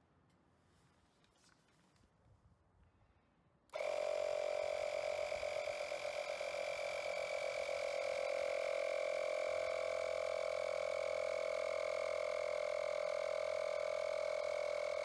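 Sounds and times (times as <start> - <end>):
electric inflator whining: 3.7 - 15.0.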